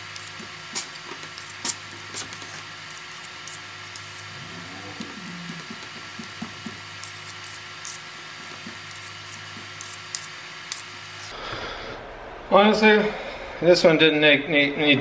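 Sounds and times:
low hum: 3.8s - 7.0s, 11.2s - 15.0s.

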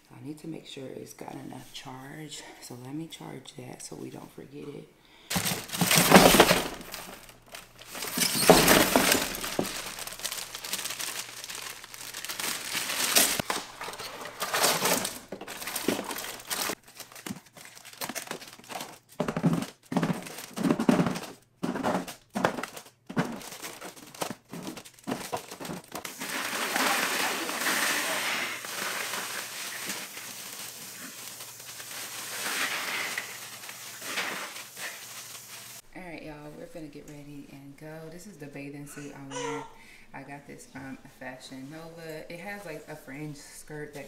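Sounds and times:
items set into plastic cooler: 5.3s - 35.8s
plastic packaging crinkling: 5.3s - 35.8s.

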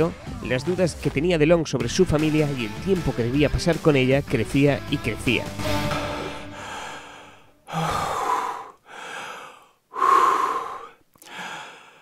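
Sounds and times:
person breathing heavily: 6.2s - 12.0s.

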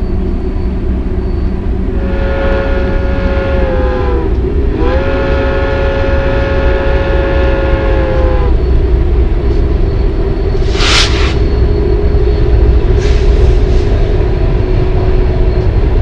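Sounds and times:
low rumble: 0.0s - 16.0s
locomotive air horn blasts: 1.9s - 8.6s.

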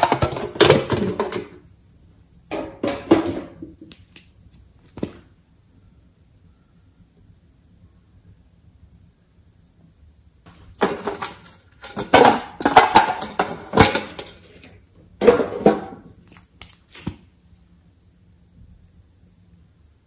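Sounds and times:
metal tin rattling: 0.0s - 1.6s, 10.8s - 14.7s.

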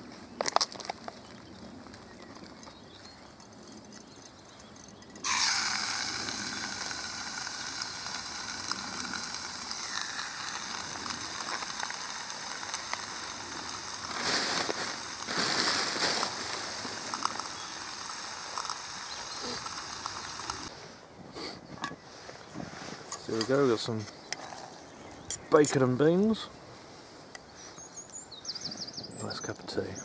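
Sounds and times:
bacon sizzling in a pot: 5.2s - 20.7s.

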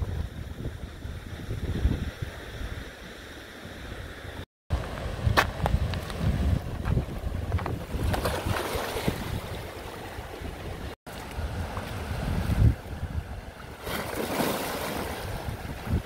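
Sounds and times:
wind buffeting microphone: 0.0s - 3.0s, 4.7s - 16.0s
waves splashing on rocks: 13.7s - 16.0s.

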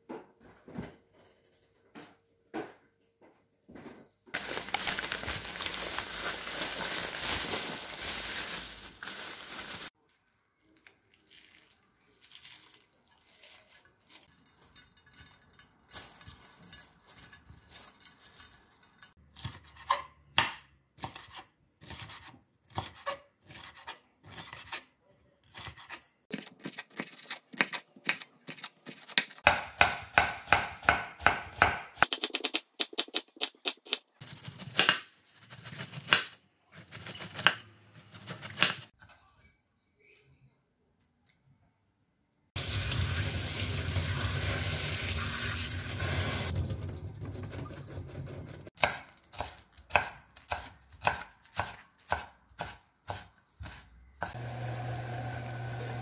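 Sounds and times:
knife chopping on wooden board: 28.9s - 35.0s, 48.8s - 54.4s.

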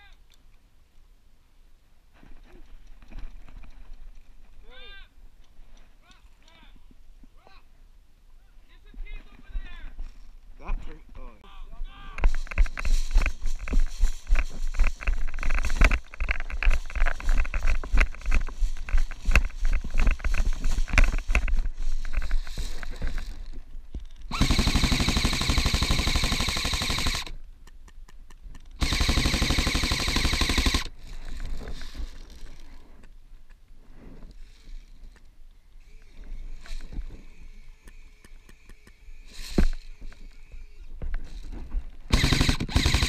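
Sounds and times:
knocks and rustling from movement: 2.1s - 4.6s, 12.1s - 24.3s, 39.3s - 42.1s
airsoft gun full-auto bursts: 24.3s - 27.4s, 28.8s - 30.9s, 42.1s - 43.0s.

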